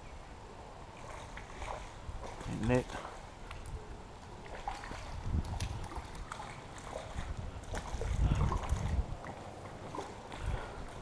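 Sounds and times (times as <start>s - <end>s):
water sloshing: 0.9s - 11.0s
wind on microphone: 4.7s - 11.0s.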